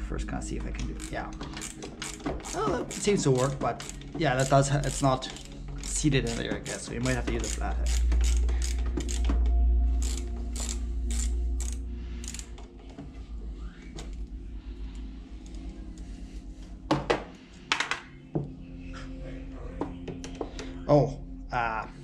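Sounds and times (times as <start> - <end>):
socket ratchet clicking: 0.9 - 12.6.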